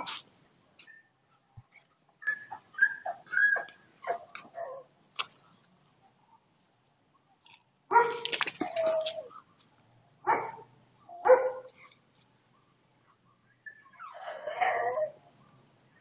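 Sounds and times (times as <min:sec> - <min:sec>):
puppy yipping and whining: 0:02.2 - 0:04.8, 0:13.7 - 0:15.2
puppy barking: 0:10.2 - 0:11.8.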